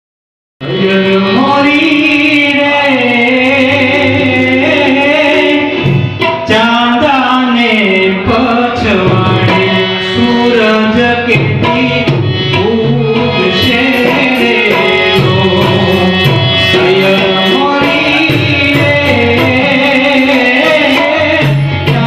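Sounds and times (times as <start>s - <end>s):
harmonium: 0.6s - 22.0s
man singing into a microphone: 0.6s - 22.0s
tabla: 0.6s - 22.0s.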